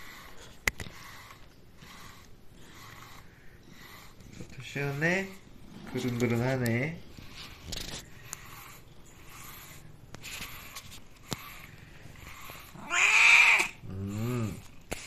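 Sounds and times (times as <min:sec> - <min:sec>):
brush rasping through fur: 0:00.0 - 0:15.0
cat meowing: 0:12.8 - 0:13.8.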